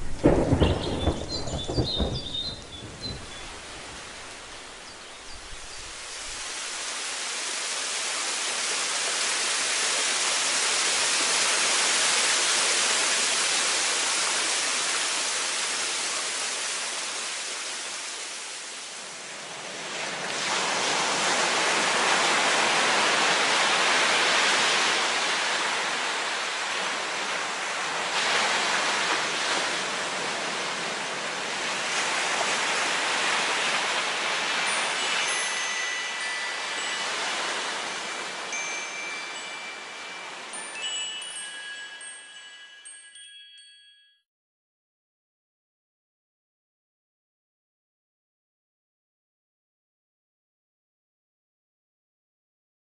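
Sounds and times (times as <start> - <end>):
water rushing: 0.0 - 43.2.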